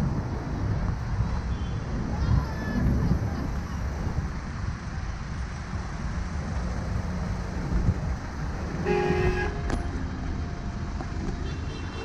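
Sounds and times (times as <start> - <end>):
traffic jam rumble: 0.0 - 12.0
car horn toot: 8.8 - 9.7, 11.4 - 12.0.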